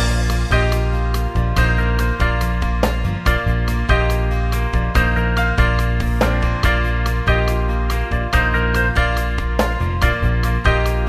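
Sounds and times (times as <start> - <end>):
background music with strong bass: 0.0 - 11.0.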